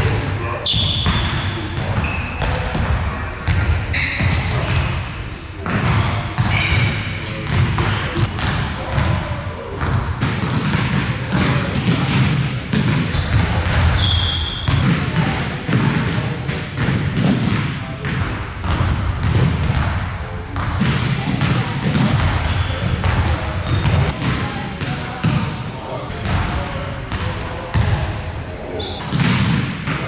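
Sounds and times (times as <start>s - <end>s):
sneaker squeaks: 0.5s - 2.8s, 3.9s - 5.0s, 5.7s - 8.5s, 10.4s - 15.0s, 16.9s - 18.2s, 19.6s - 26.9s, 28.7s - 30.0s
basketballs bouncing on hardwood: 5.6s - 9.2s, 9.8s - 20.0s, 20.6s - 26.4s, 29.1s - 30.0s.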